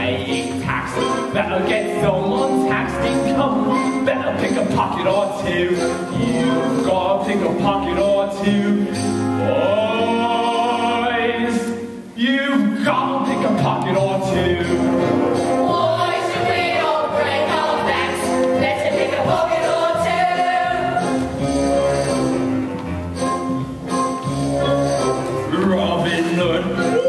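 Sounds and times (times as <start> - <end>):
musical accompaniment: 0.0 - 27.0
cast singing together: 12.9 - 21.2.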